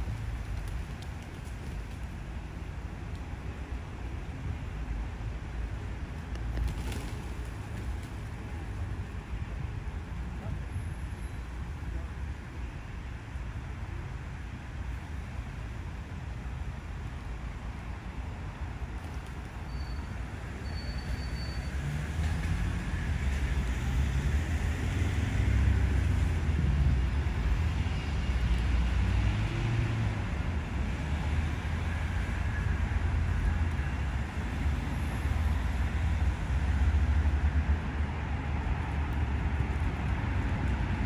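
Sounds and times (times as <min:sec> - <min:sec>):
distant road traffic rumble: 0:00.0 - 0:41.0
faint high whistles: 0:19.7 - 0:21.8.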